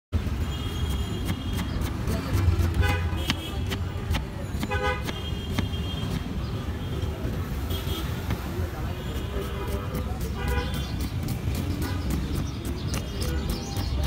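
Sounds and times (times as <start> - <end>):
street traffic rumble: 0.1 - 14.0
knife chopping on wooden board: 0.9 - 6.4, 9.4 - 14.0
vehicle horns honking: 2.8 - 3.7, 4.5 - 7.1, 7.7 - 8.3, 8.9 - 10.9.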